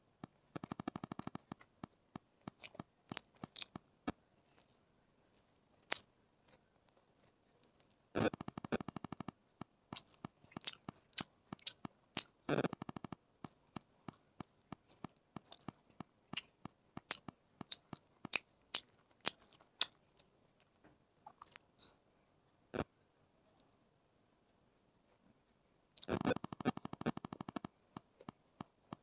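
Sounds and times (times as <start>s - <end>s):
chewing and biting food: 2.5s - 3.8s, 4.4s - 6.6s, 7.2s - 9.3s, 9.9s - 20.3s, 21.3s - 21.6s.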